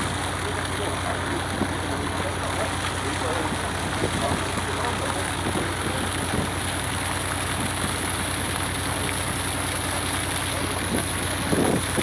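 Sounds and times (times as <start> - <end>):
boat engine running at low revs: 0.0 - 12.0.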